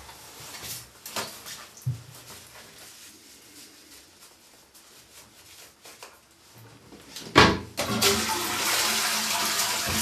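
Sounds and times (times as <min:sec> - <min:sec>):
toilet paper rustling: 0:00.0 - 0:07.2
toilet flushing: 0:07.8 - 0:10.0.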